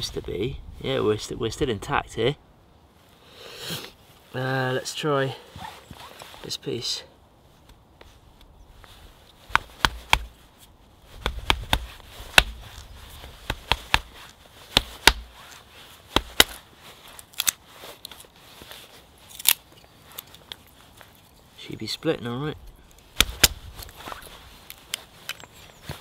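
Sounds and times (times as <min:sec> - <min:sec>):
knife splitting wood: 0:09.5 - 0:10.4, 0:11.2 - 0:15.5, 0:16.1 - 0:16.6, 0:23.1 - 0:24.0.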